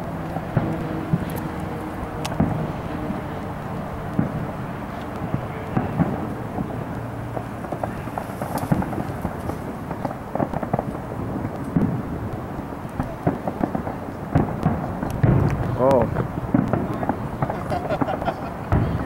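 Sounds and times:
steady rumbling background: 0.0s - 19.0s
firework booms and pops: 0.3s - 1.3s, 2.3s - 2.7s, 4.1s - 19.0s.

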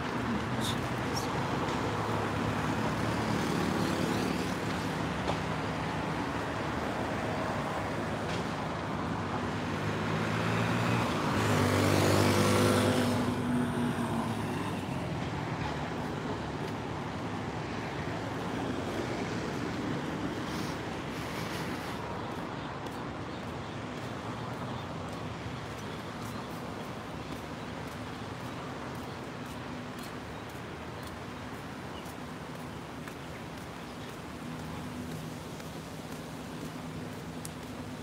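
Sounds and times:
steady road traffic: 0.0s - 38.0s
vehicle passing close: 9.8s - 14.9s.

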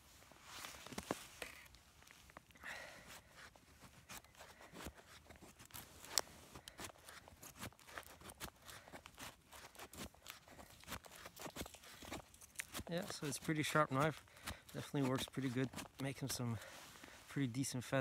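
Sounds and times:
knife scraping wood: 3.2s - 17.3s.

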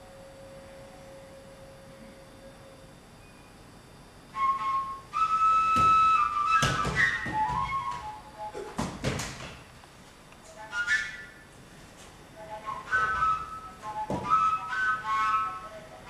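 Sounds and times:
high flute-like note: 12.4s - 16.0s.

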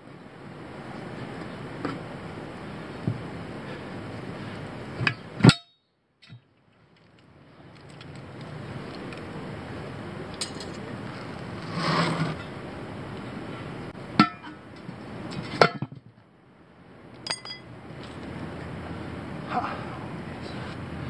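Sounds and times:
steady background noise: 0.0s - 21.0s
steel tire irons clinking: 10.3s - 11.0s, 14.2s - 15.9s, 17.2s - 17.7s
tire scuffing rush: 10.6s - 13.9s.

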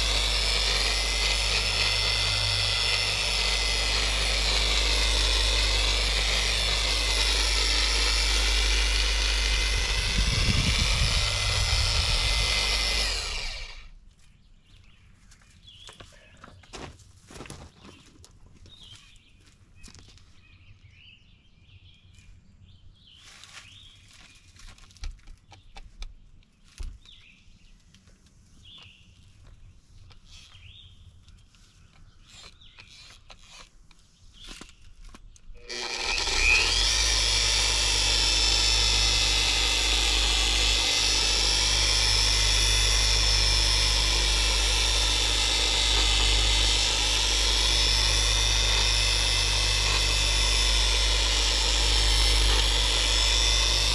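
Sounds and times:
polisher spinning with a whine: 0.0s - 14.0s, 35.6s - 53.9s.

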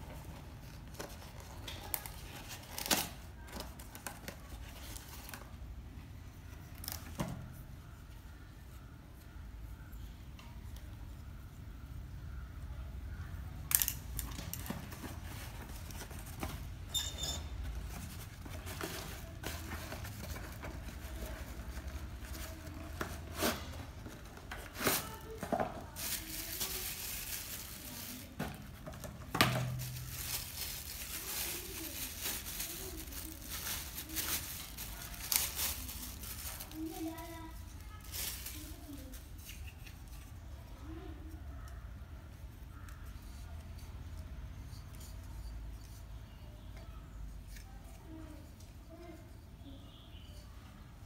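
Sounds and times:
plastic bag crinkling: 17.7s - 39.2s.

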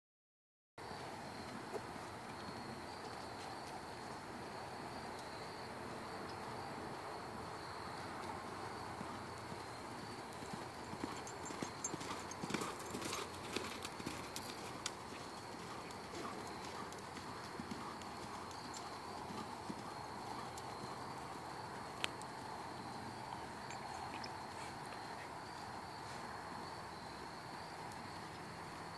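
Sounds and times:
insects droning: 0.8s - 28.9s
hoofbeats on sand: 6.5s - 23.0s.

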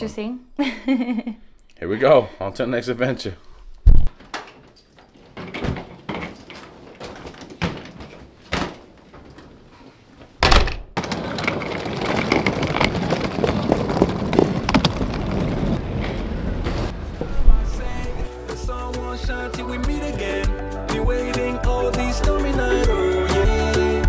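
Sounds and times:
suitcase wheels rolling on stone: 4.2s - 9.8s, 11.0s - 18.3s
door and luggage knocks: 5.3s - 9.0s, 10.4s - 11.2s.

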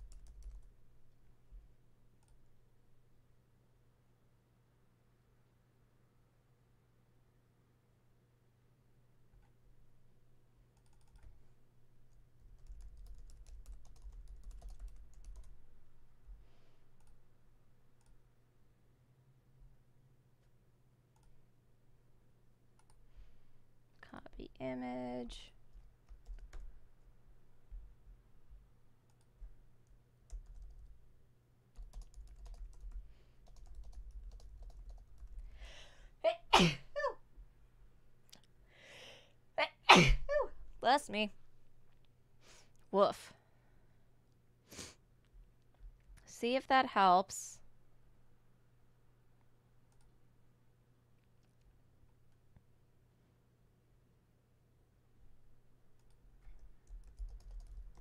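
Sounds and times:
typing on keyboard: 0.0s - 0.8s, 10.8s - 11.4s, 12.1s - 15.6s, 25.7s - 26.7s, 29.1s - 31.0s, 31.8s - 35.4s, 56.0s - 58.0s
low electrical hum: 0.0s - 58.0s
quick in-breath: 35.5s - 36.2s, 38.6s - 39.4s
loud sneeze: 36.3s - 37.2s, 39.6s - 40.5s.

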